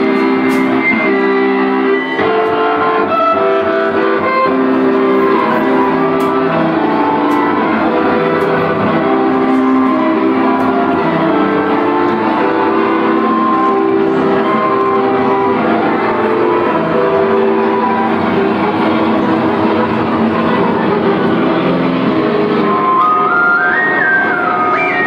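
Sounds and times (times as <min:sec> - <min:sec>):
loud live band music: 0:00.0 - 0:25.0.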